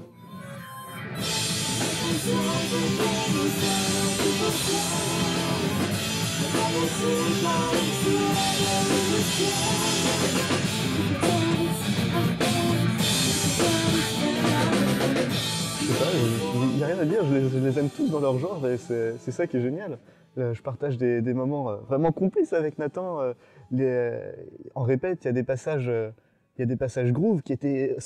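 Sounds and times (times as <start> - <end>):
rock band playing: 1.0 - 19.2
man singing lead vocal: 1.7 - 18.7.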